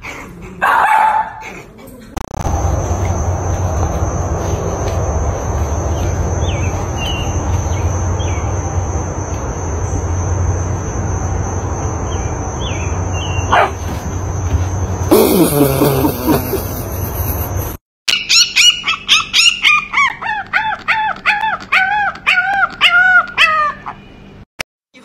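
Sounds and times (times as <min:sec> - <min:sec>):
low hum: 0:01.9 - 0:15.2
steady rushing background: 0:02.4 - 0:12.5
thin high steady tone: 0:02.4 - 0:13.6.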